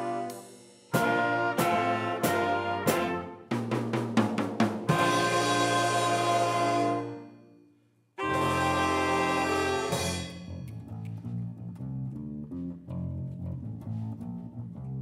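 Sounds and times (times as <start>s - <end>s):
big band horns held chord: 0.0s - 3.7s, 4.9s - 7.4s, 8.2s - 10.5s
electric bass line: 8.2s - 15.0s.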